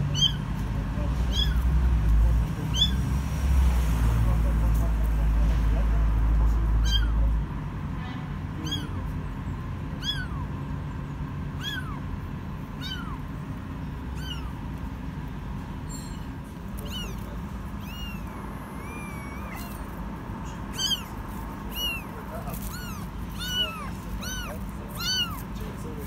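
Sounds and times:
kitten meowing: 0:00.0 - 0:00.6, 0:01.2 - 0:01.9, 0:02.7 - 0:03.0, 0:06.6 - 0:07.4, 0:08.5 - 0:09.2, 0:09.9 - 0:10.6, 0:11.5 - 0:13.4, 0:14.0 - 0:14.8, 0:15.9 - 0:26.0.

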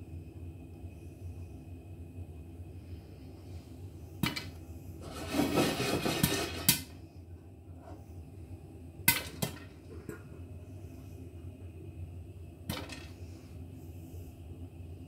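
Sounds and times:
popcorn popping in a pan: 0:09.1 - 0:09.8.

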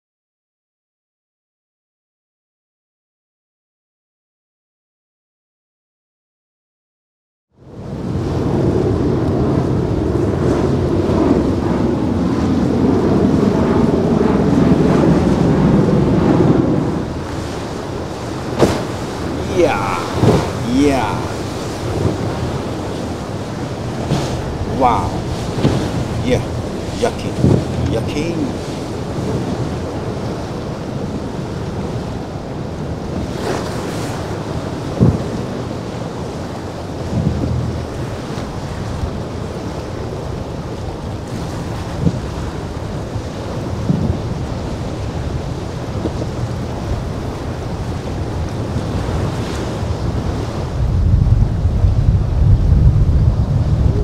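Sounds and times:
surf breaking around hull: 0:07.6 - 0:54.0
wind and water noise: 0:07.6 - 0:54.0
aircraft rotors and engines rumbling: 0:08.2 - 0:31.0.

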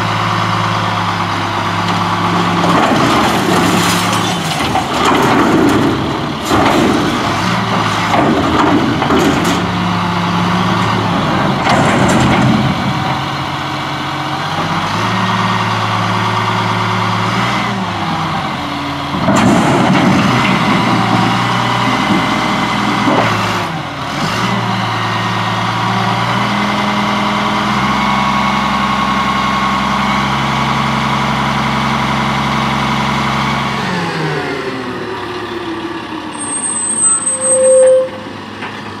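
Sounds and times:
diesel truck engine revving: 0:00.0 - 0:39.0
clatter and rushing noise: 0:01.8 - 0:13.8, 0:19.1 - 0:24.6.

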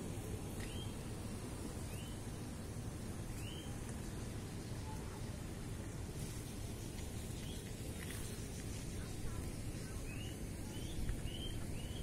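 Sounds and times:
low rumbling outdoor noise: 0:00.0 - 0:12.0
bird chirping: 0:00.6 - 0:01.0, 0:01.8 - 0:02.3, 0:03.3 - 0:03.8, 0:07.2 - 0:07.7, 0:09.8 - 0:12.0.

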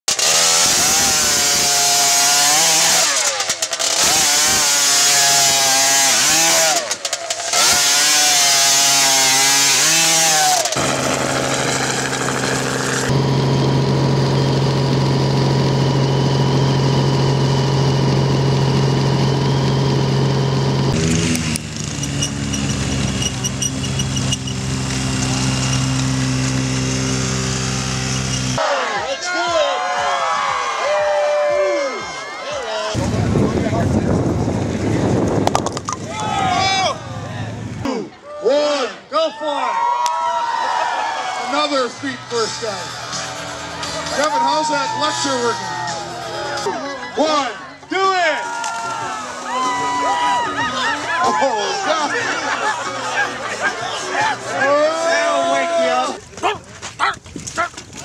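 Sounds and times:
small engine revving: 0:00.1 - 0:28.6.

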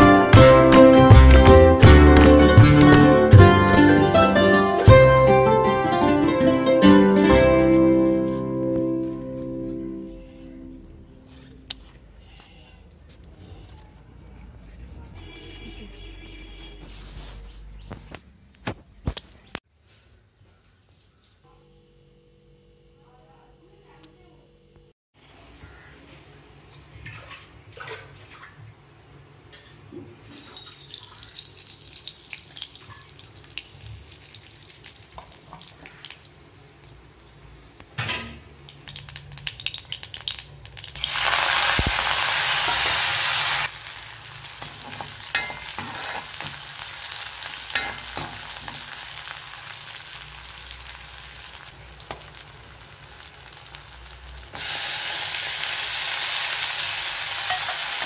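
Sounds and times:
hot oil sizzling: 0:30.4 - 0:37.9, 0:38.5 - 0:58.0
mustard seeds popping: 0:38.6 - 0:42.1.

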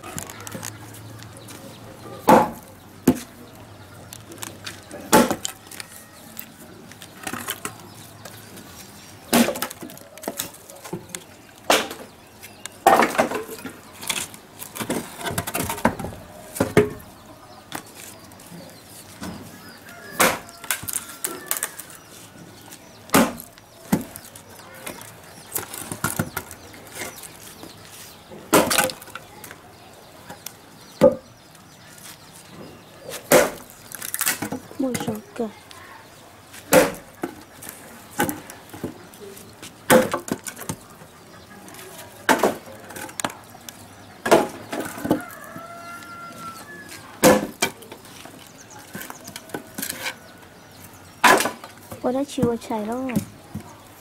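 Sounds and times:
axe chopping firewood: 0:02.3 - 0:03.3, 0:05.0 - 0:05.6, 0:09.3 - 0:10.4, 0:11.6 - 0:12.1, 0:20.1 - 0:21.0, 0:23.1 - 0:24.2, 0:28.5 - 0:29.0, 0:33.2 - 0:35.2, 0:36.7 - 0:37.3, 0:39.9 - 0:40.8, 0:47.2 - 0:47.8, 0:51.2 - 0:51.7.

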